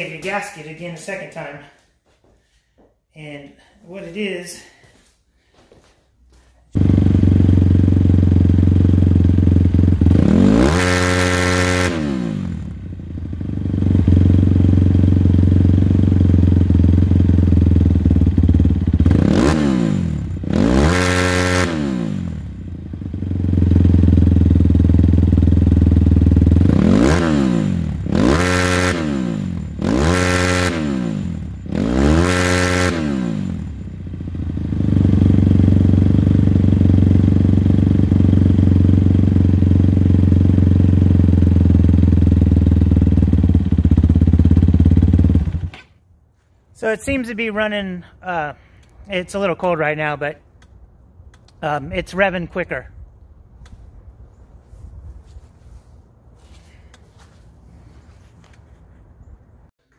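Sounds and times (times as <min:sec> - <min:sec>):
motorcycle engine idling and revving: 0:06.7 - 0:46.0.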